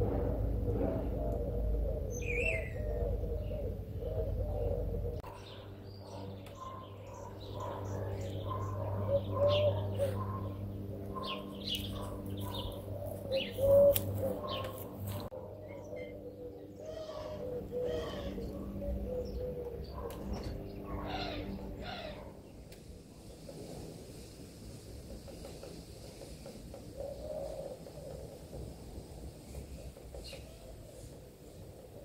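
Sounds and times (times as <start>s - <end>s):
low rumble: 0.0s - 5.9s
birds chirping: 1.0s - 23.6s.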